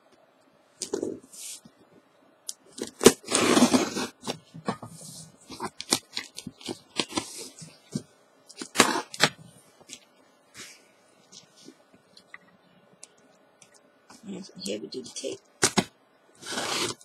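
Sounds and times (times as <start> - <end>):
packing tape tearing: 2.7 - 4.3, 8.6 - 9.4, 15.6 - 17.0.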